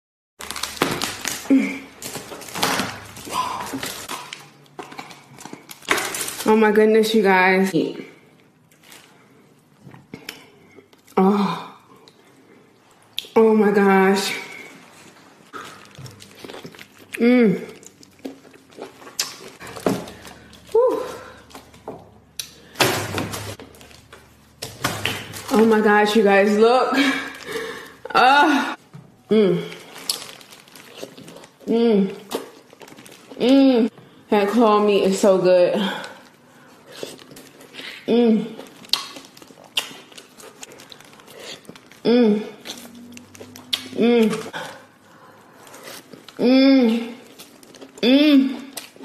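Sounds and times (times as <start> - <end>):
lobster shell cracking: 38.6 - 42.0.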